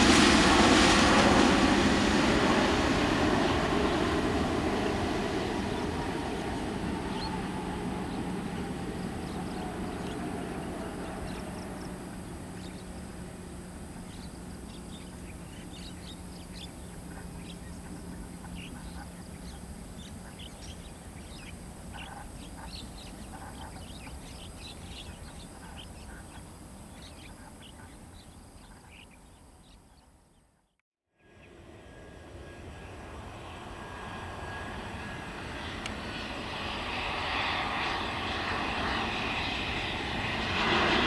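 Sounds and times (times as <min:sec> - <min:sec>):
distant jet engine hum: 0:00.0 - 0:30.5, 0:31.2 - 0:41.0
birds chirping: 0:00.8 - 0:30.8.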